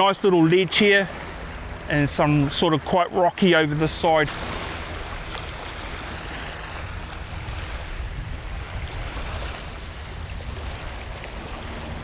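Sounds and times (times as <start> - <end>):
wind rumbling on microphone: 3.6 - 12.0.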